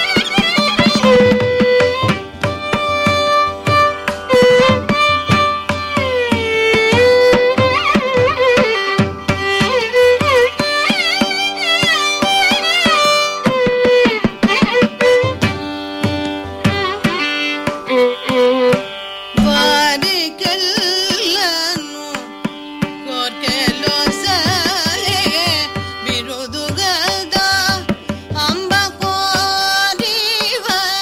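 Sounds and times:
mridangam drum strokes: 0.0 - 31.0
violin: 0.0 - 31.0
person singing: 19.4 - 22.4, 23.0 - 31.0.

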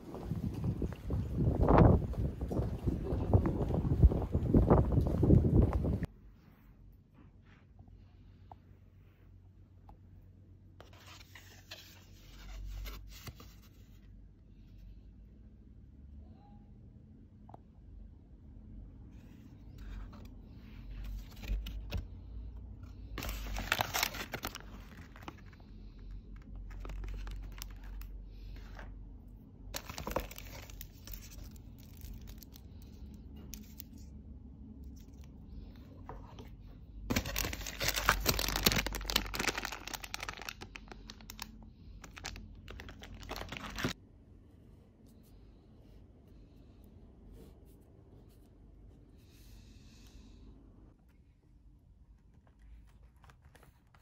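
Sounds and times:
tissue paper and bag rustling: 23.2 - 25.6, 29.8 - 32.6, 37.1 - 44.0.

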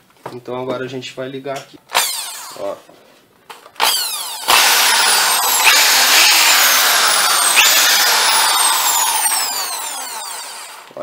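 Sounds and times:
electric drill motor running: 2.0 - 2.6, 3.8 - 11.0.

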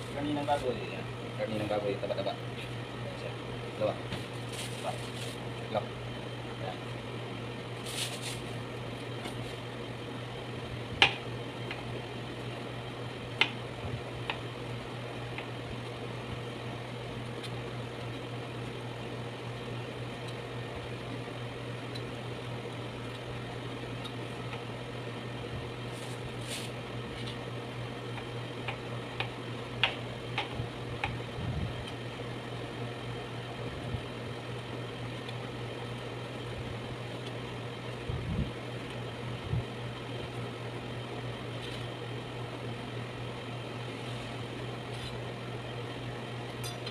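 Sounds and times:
low machine hum: 0.0 - 46.9.

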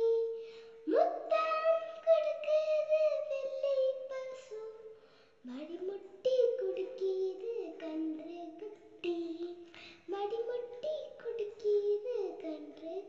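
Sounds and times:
child singing a rhyme: 0.0 - 13.0.

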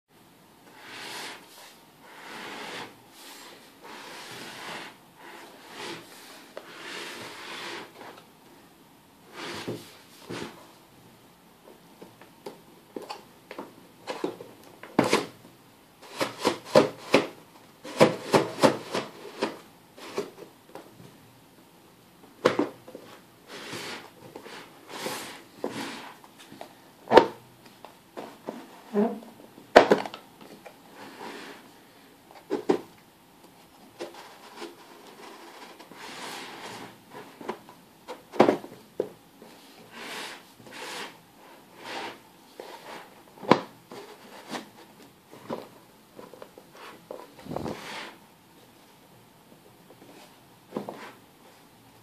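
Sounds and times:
wood rubbing scrapes: 0.7 - 8.2, 39.9 - 43.2, 46.7 - 48.2.

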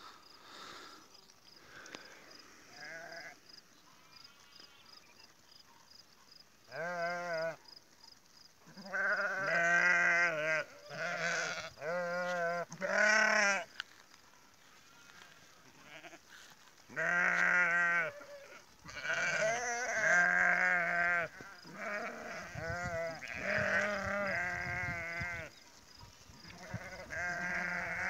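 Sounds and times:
sheep bleating: 2.7 - 5.0, 6.7 - 7.6, 8.7 - 13.8, 14.6 - 16.3, 16.9 - 25.5, 26.4 - 28.0.

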